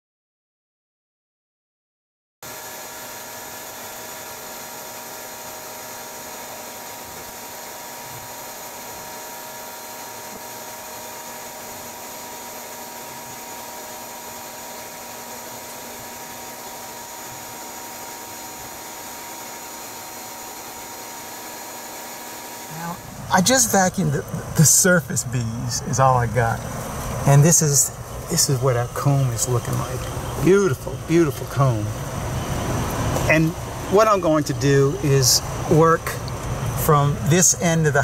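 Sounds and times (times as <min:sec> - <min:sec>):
vacuum motor whining: 0:02.5 - 0:38.0.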